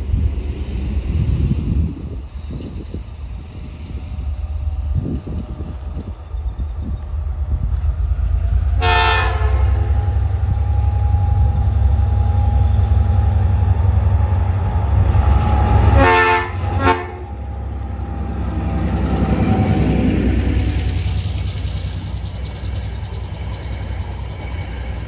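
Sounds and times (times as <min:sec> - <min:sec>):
train rumbling: 0:00.0 - 0:25.0
locomotive horn blasts: 0:08.8 - 0:10.5, 0:15.8 - 0:17.3.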